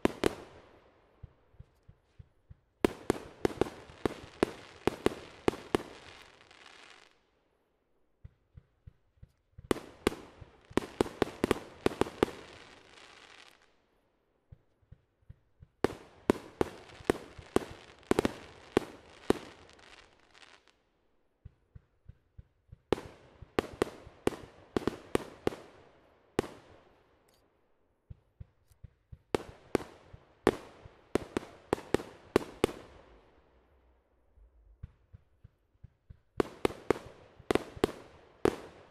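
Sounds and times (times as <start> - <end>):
firework cracks and pops: 2.8 - 7.2, 8.3 - 13.8, 14.6 - 20.8, 34.4 - 38.9.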